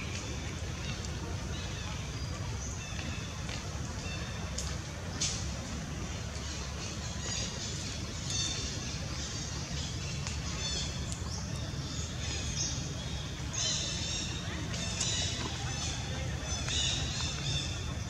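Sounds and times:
birds chirping: 0:06.4 - 0:18.0.

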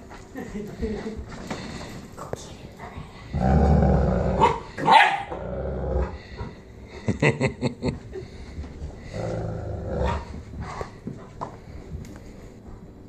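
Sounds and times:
dogs growling: 0:02.8 - 0:07.1, 0:08.2 - 0:11.3.

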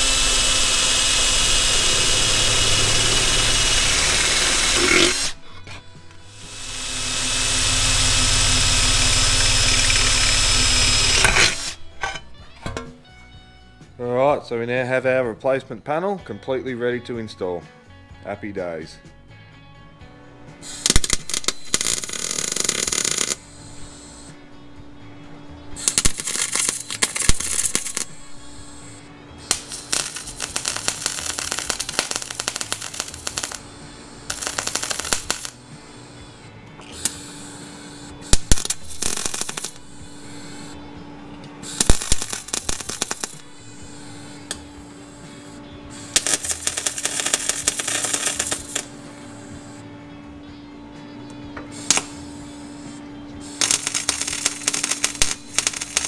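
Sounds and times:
welder crackling and sputtering: 0:00.0 - 0:05.4, 0:06.2 - 0:11.9, 0:20.7 - 0:24.4, 0:25.8 - 0:40.8, 0:41.6 - 0:49.6, 0:51.8 - 0:52.4, 0:53.5 - 0:56.0
background music: 0:00.0 - 0:56.0.

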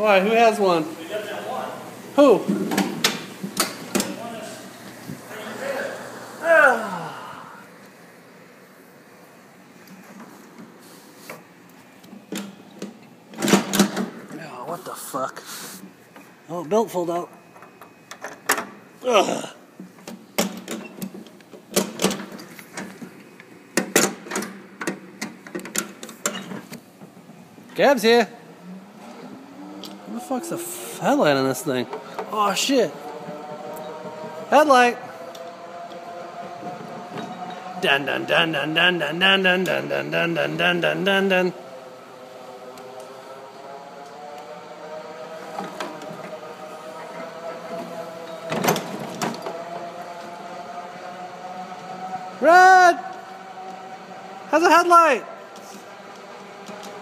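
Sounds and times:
golf cart drive whine: 0:00.0 - 0:10.4, 0:26.4 - 0:57.0.

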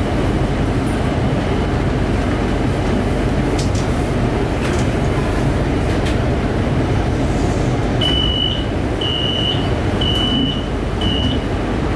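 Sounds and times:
train rumbling at platform: 0:00.0 - 0:11.9
electronic door warning beeps: 0:08.0 - 0:11.5.

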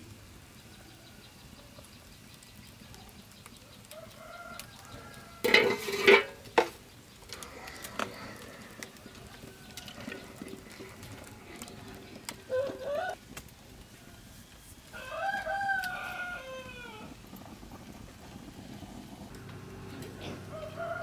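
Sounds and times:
poultry calling: 0:07.4 - 0:13.2.

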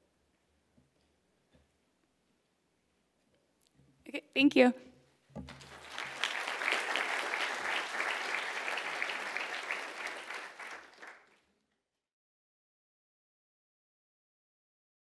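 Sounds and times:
audience applauding: 0:05.5 - 0:11.5.

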